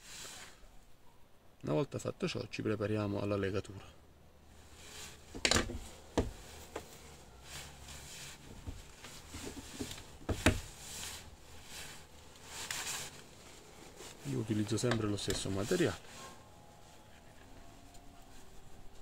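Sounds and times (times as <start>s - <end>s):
light rustling: 4.5s - 19.0s
sharp handling knocks: 5.3s - 6.9s, 8.6s - 10.7s.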